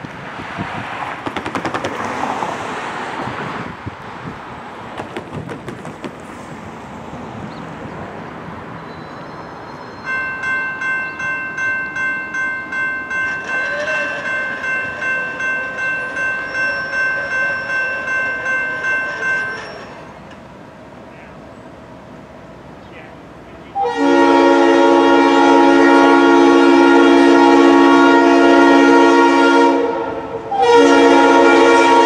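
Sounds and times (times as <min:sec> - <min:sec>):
railroad crossing bell ringing: 0:08.8 - 0:20.2.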